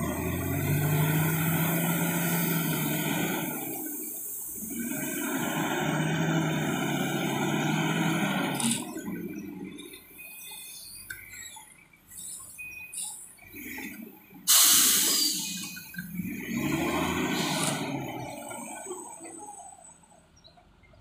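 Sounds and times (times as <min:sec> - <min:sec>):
wheel loader diesel engine: 0:00.0 - 0:21.0
loud rushing hiss: 0:14.5 - 0:15.6.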